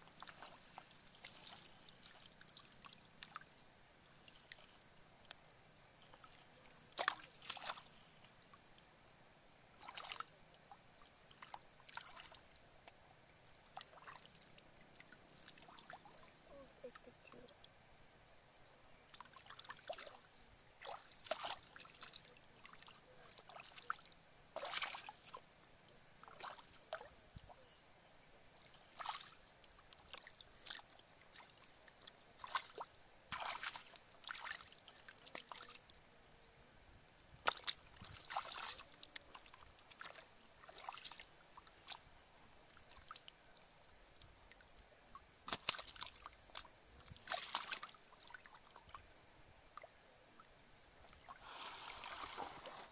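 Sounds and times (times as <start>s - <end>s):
hands splashing in muddy water: 6.9s - 7.9s, 32.4s - 34.6s, 45.4s - 48.0s, 51.4s - 52.9s.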